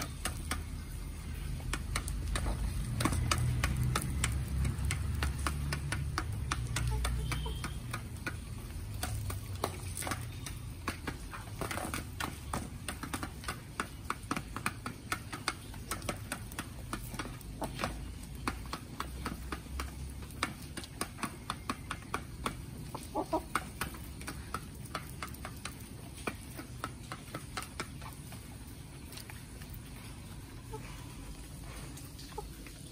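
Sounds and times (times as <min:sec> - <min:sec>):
beaks tapping on feeder: 0:00.0 - 0:31.0
chicken clucking: 0:06.4 - 0:10.6, 0:17.1 - 0:18.6, 0:22.0 - 0:24.4, 0:30.2 - 0:32.9.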